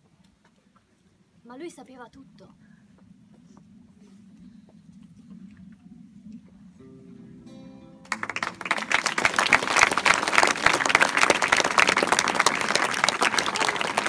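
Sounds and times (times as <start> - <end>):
held music notes: 6.8 - 13.0
audience applause: 8.0 - 14.0.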